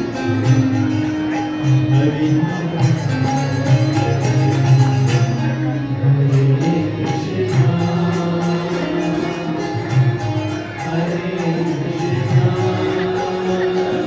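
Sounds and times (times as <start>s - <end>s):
chant-style singing: 6.2s - 9.9s, 10.7s - 14.0s.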